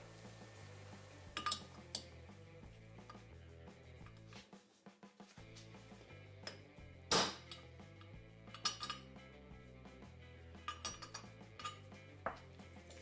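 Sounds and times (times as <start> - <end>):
background music: 0.0 - 13.0
light clinking taps: 1.4 - 2.1, 10.6 - 12.5.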